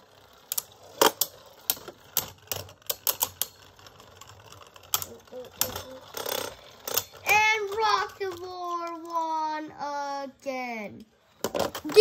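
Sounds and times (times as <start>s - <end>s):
spinning tops clicking together: 0.1s - 9.4s.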